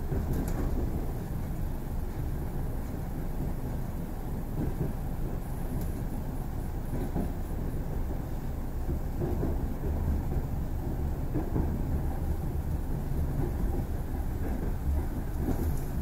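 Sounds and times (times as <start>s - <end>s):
train running gear rumbling: 0.0s - 16.0s
wheels knocking on track: 8.8s - 16.0s.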